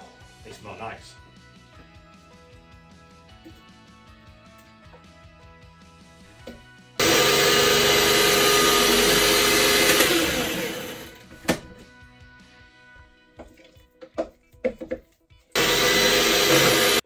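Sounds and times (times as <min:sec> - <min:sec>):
background music: 0:00.0 - 0:17.0
food processor motor: 0:07.0 - 0:11.2, 0:15.6 - 0:17.0.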